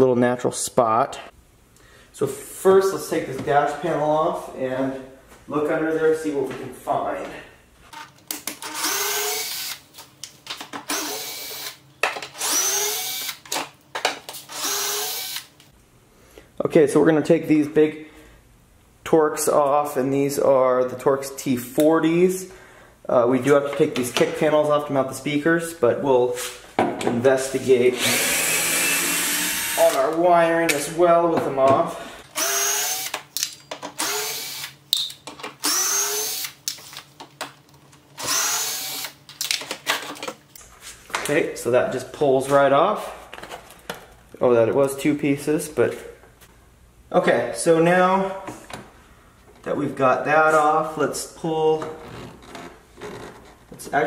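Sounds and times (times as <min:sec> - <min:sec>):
cordless drill whirring: 0:08.6 - 0:09.8, 0:10.9 - 0:11.8, 0:12.4 - 0:13.4, 0:14.5 - 0:15.5, 0:28.0 - 0:30.0, 0:32.4 - 0:33.2, 0:34.0 - 0:34.8, 0:35.6 - 0:36.6, 0:38.2 - 0:39.2.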